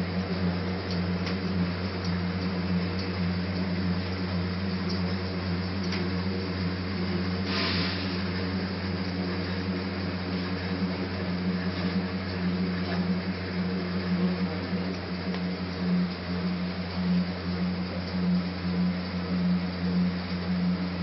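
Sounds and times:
film rewinding machine humming: 0.0 - 21.0
brief rustling hiss: 7.4 - 8.3.

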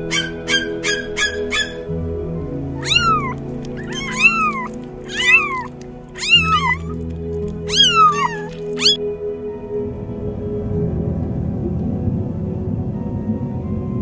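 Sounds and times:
background music: 0.0 - 14.0
kitten meowing: 2.8 - 7.0, 7.6 - 9.0.

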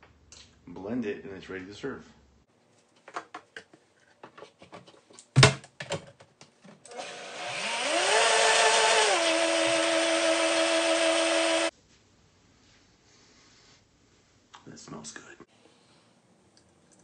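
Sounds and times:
blender motor running: 6.9 - 11.7.

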